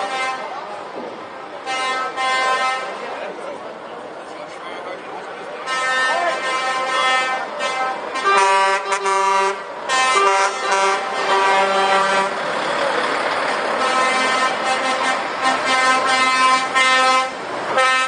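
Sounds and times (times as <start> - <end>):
truck air horn blasts: 0.0 - 0.6, 1.6 - 3.0, 5.6 - 12.4, 13.8 - 18.0
trucks rolling past: 0.0 - 18.0.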